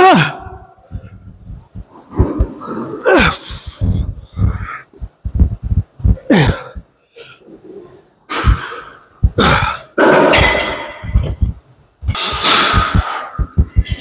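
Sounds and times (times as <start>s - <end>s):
man groaning: 0.0s - 0.6s, 3.0s - 4.8s
man grunting and breathing hard: 3.0s - 7.4s, 9.2s - 11.6s.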